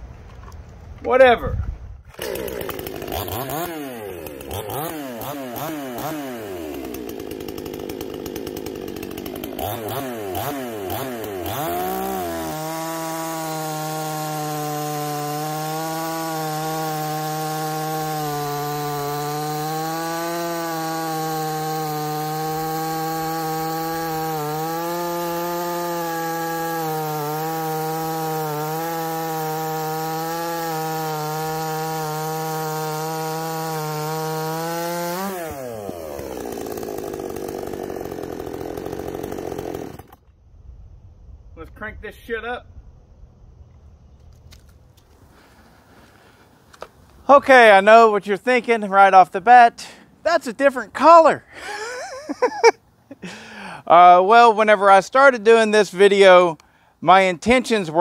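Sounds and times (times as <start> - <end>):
chainsaw revving and cutting log: 2.1 - 40.3, 49.8 - 54.1.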